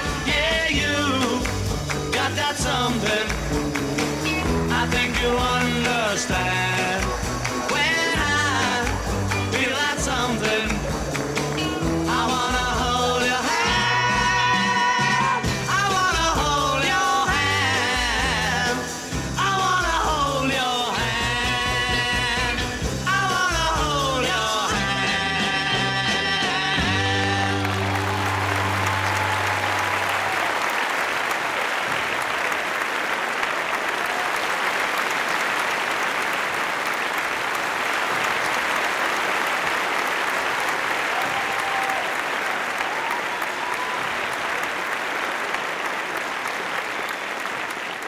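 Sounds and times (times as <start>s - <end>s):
audience applauding: 0.0s - 21.0s, 26.0s - 48.0s
recorded pop song: 0.0s - 30.1s.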